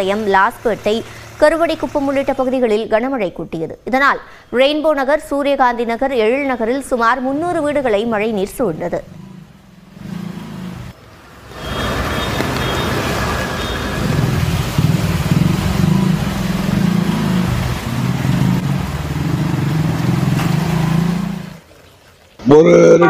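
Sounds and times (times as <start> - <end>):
motorcycle engine running: 0.0 - 2.6, 9.0 - 11.0, 12.0 - 21.6
water hissing as churned up: 0.0 - 2.8, 10.5 - 22.4.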